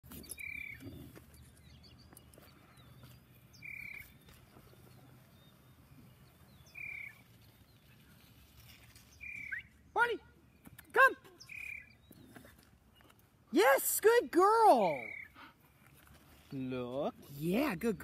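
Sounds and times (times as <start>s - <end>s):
faint low outdoor hum: 0.1s - 18.0s.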